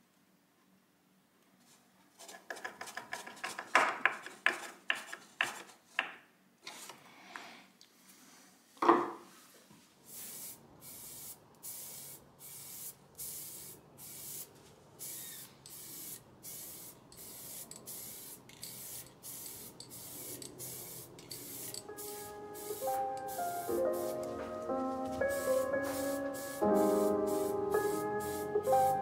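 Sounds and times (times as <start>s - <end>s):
aerosol spray can hissing: 10.1s - 24.4s, 25.2s - 29.0s.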